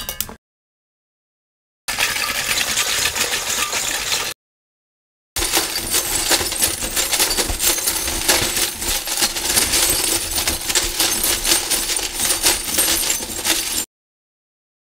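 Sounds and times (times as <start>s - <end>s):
glass shards clinking and scraping: 1.9s - 4.3s, 5.4s - 13.9s.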